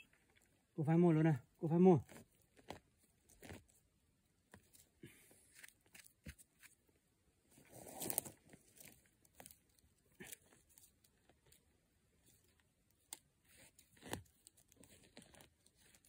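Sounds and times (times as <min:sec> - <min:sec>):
rustling scrape: 0:07.5 - 0:09.6
hands digging through dry needles: 0:07.8 - 0:11.6.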